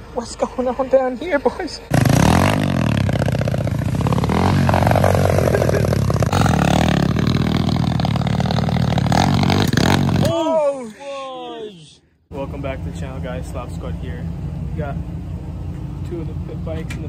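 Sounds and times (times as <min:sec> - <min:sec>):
motorbike engine revving: 0:01.9 - 0:10.3.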